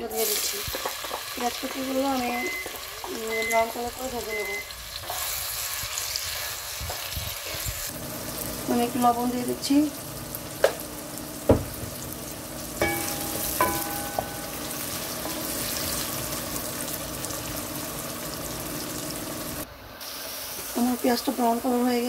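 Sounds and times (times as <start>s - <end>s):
onions sizzling in oil: 0.0s - 22.0s
spatula knocking on pan: 11.4s - 12.0s, 12.8s - 15.6s
spatula clinking against pan: 12.8s - 15.5s.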